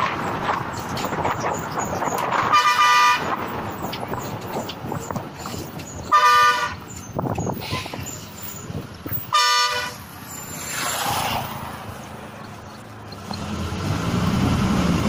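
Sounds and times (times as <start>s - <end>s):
bus body rattle: 0.0s - 9.4s
road and wind noise: 0.0s - 15.0s
bus horn blasts: 2.4s - 3.4s, 6.1s - 6.8s, 9.3s - 10.1s.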